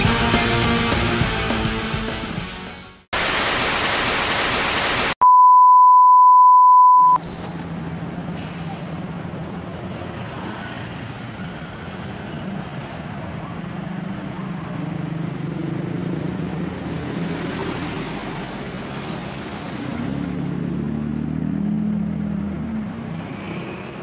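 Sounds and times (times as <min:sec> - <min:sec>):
loud static hiss: 0:03.2 - 0:05.2
loud high beep: 0:04.8 - 0:07.5
cars passing: 0:07.7 - 0:24.0.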